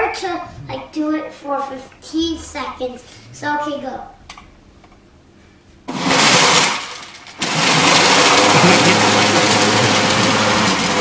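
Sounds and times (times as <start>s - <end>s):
blender running: 5.9s - 11.0s.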